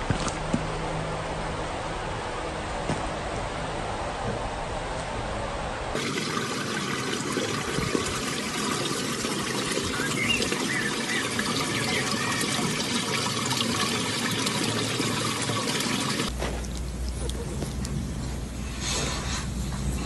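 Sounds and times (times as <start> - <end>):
water running and trickling: 6.0 - 18.1.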